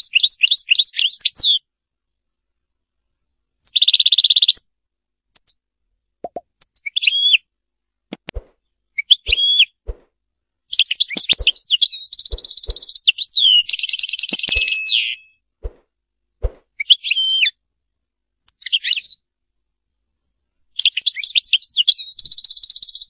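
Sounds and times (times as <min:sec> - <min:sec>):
goldfinch singing: 0:10.7 - 0:15.4.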